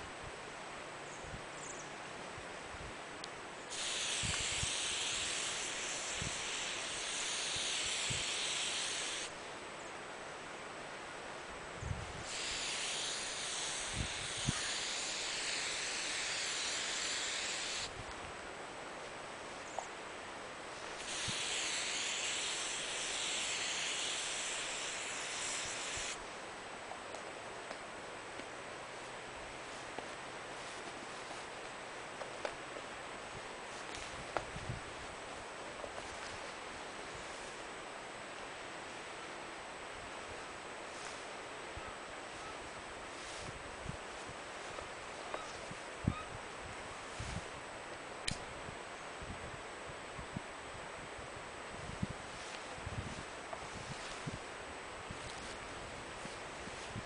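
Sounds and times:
aerosol spray can hissing: 3.7s - 9.3s, 12.2s - 17.9s, 21.0s - 26.2s.

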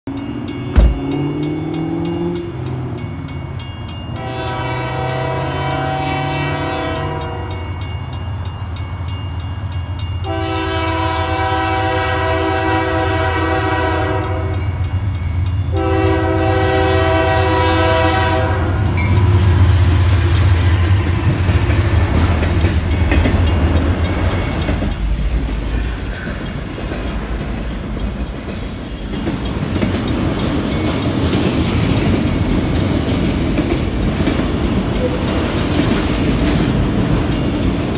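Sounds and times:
crossing bell ringing: 0.1s - 37.9s
locomotive rumbling past: 0.1s - 37.9s
rail cars clattering over rails: 0.1s - 37.9s
locomotive horn blasts: 4.2s - 7.7s, 10.2s - 14.8s, 15.7s - 19.0s.

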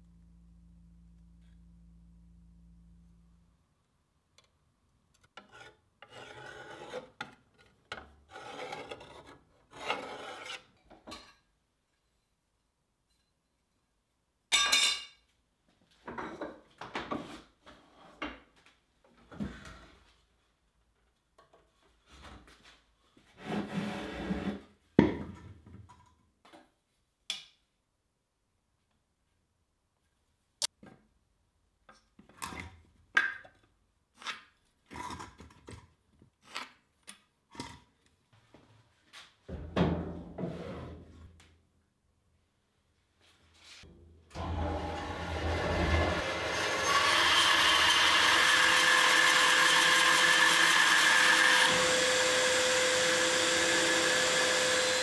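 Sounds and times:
wooden block scraping: 5.4s - 10.7s, 23.3s - 24.8s.

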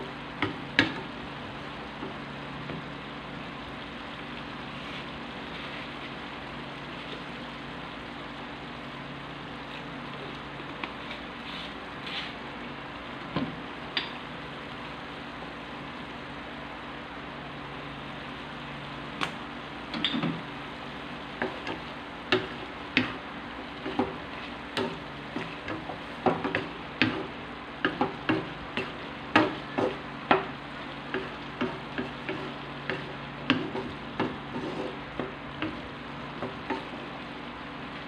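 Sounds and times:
meat sizzling in a wok: 0.0s - 38.0s
wooden spatula scraping a pan: 11.0s - 12.4s, 31.1s - 37.0s.

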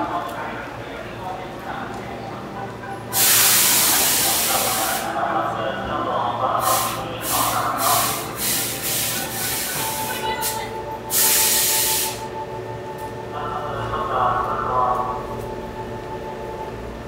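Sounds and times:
steady humming tone: 0.0s - 17.0s
train compressed air hisses: 3.1s - 5.2s, 6.6s - 12.3s.

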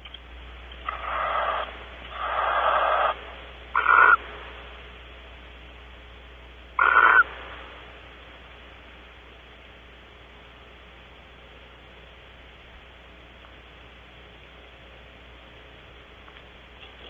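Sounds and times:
low hum: 0.0s - 17.0s
barn owl screeching: 0.8s - 4.2s, 6.8s - 7.3s.

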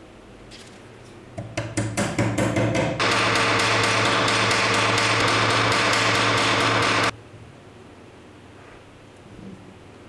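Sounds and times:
hammer tapping on metal: 1.4s - 7.1s.

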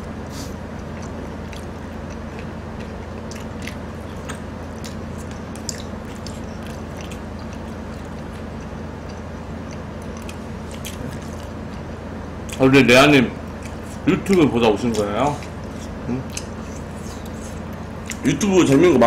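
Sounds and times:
people chewing: 0.0s - 19.0s
steady low hum: 0.0s - 19.0s
small clicks and smacks: 1.0s - 11.8s.

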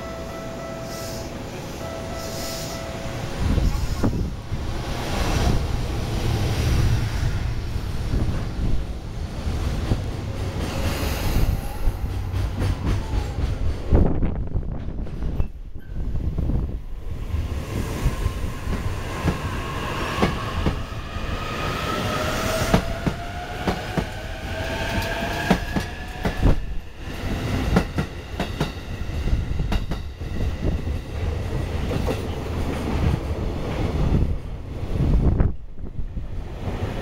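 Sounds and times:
freight train rumbling past: 0.0s - 37.0s.

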